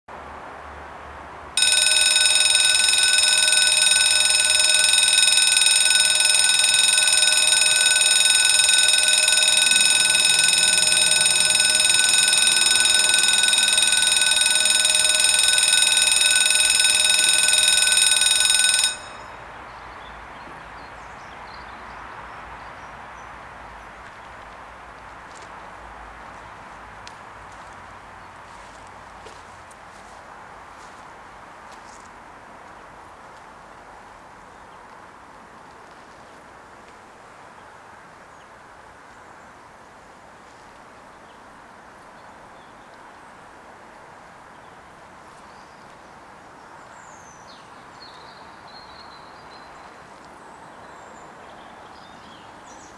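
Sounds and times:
level crossing bells ringing: 1.6s - 19.4s.

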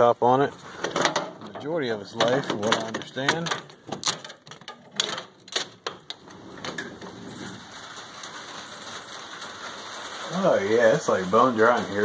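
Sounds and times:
metal latch clicks and clunks: 0.8s - 6.9s
rain hissing: 6.0s - 12.0s.

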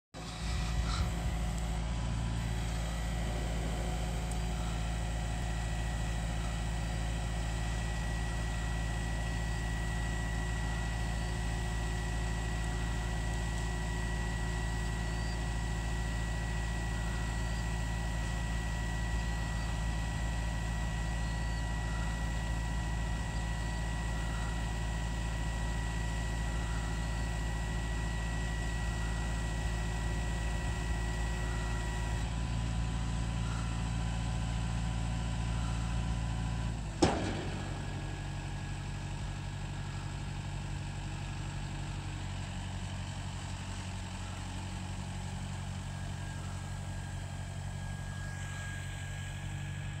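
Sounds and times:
diesel tractor engine running: 0.1s - 50.0s
thin steady whine: 0.2s - 42.4s, 44.1s - 50.0s
sharp metallic bang: 37.0s - 38.7s.

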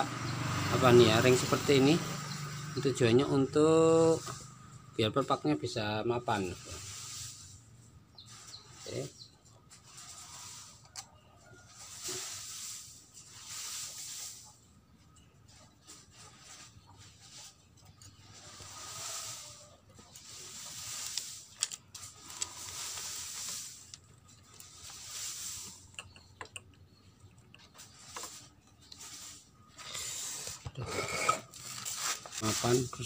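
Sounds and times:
paper rustling and scraping: 18.2s - 25.8s, 27.8s - 33.0s.

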